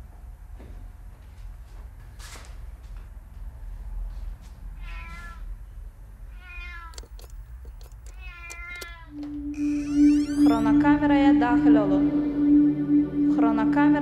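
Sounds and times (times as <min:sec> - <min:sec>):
cat meowing: 0:04.8 - 0:05.5, 0:06.3 - 0:07.3, 0:08.1 - 0:10.7
door handle clicks: 0:06.9 - 0:09.0.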